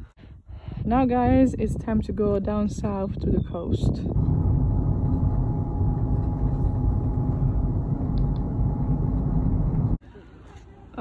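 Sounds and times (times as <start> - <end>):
car road and engine rumble: 4.1 - 11.0.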